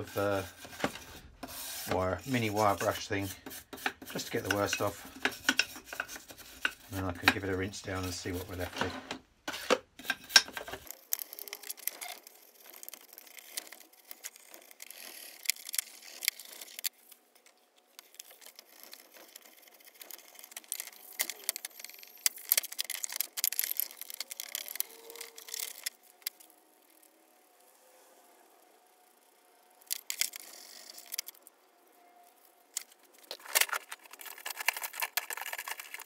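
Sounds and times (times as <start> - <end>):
wire brush scrubbing metal: 0.0 - 8.9.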